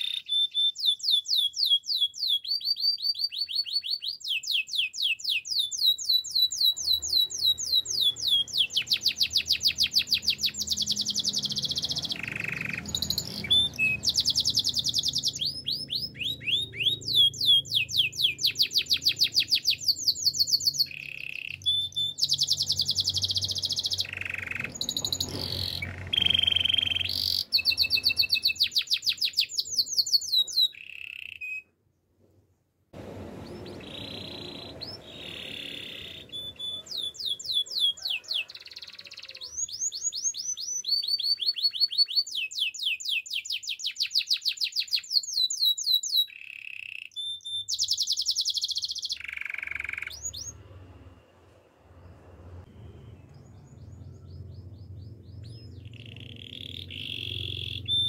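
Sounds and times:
canary singing rapid trills: 0.0 - 31.6, 33.4 - 50.9, 53.0 - 58.0.

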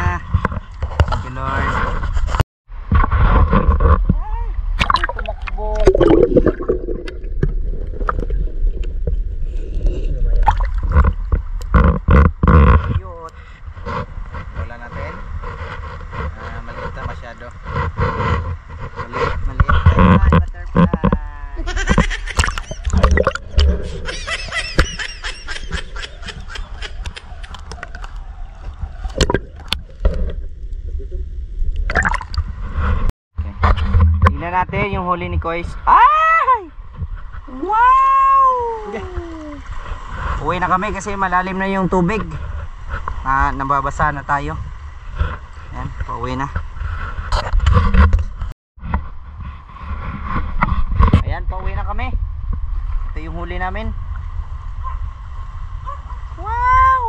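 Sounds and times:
underwater rumble of moving water: 0.2 - 24.1, 26.4 - 35.9, 38.8 - 57.0
low underwater rumble: 2.7 - 13.0, 22.0 - 24.1, 26.4 - 34.9.

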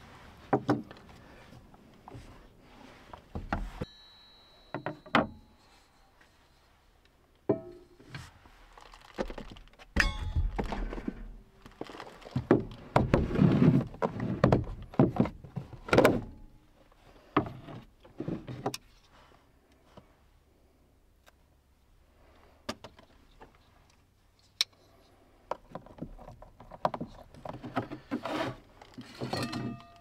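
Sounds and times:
metal plate set on wood: 7.5 - 8.1, 9.9 - 11.4
rustling of leafy greens: 11.5 - 13.8.

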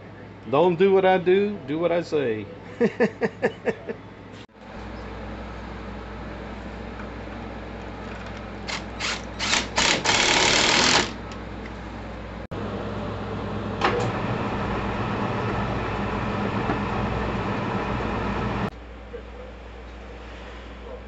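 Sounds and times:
steady machine hum: 0.0 - 21.0
cordless drill whirring: 8.7 - 11.2.

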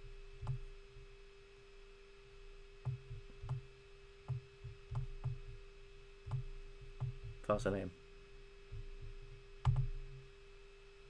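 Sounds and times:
steady electrical hum: 0.0 - 11.0
computer mouse clicks: 6.3 - 7.2, 9.6 - 10.0.

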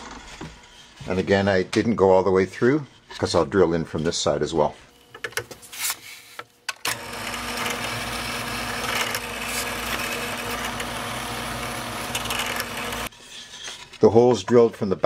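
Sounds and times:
drill press motor humming: 6.8 - 13.1.

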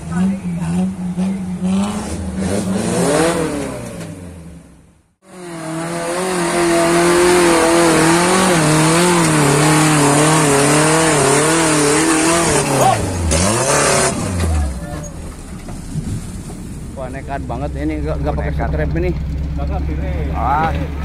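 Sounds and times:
off-road engine revving under load: 0.0 - 14.9.

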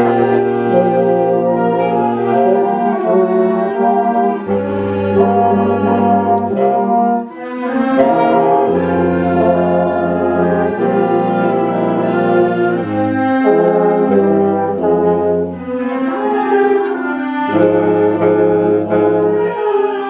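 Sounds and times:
low bass notes: 0.0 - 7.2, 8.0 - 15.8
horns: 0.0 - 20.0
saxophones: 0.0 - 20.0
trombones: 0.0 - 20.0
wind band playing held chords: 0.0 - 20.0.

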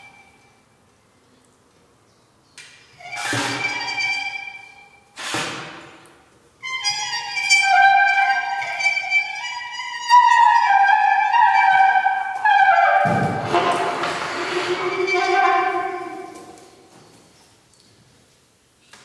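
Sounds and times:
brass duet: 10.4 - 16.4.

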